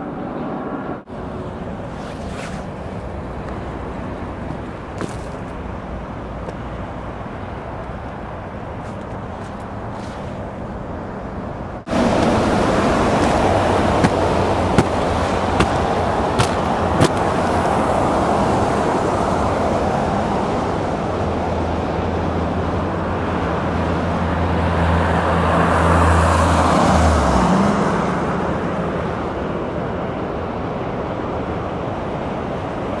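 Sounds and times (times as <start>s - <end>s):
road noise: 0.0s - 33.0s
vehicle passing with low engine hum: 0.0s - 33.0s.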